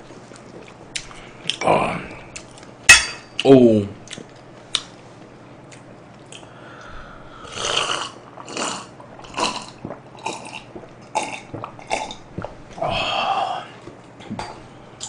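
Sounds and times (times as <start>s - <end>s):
person gulping a drink: 7.5s - 13.0s.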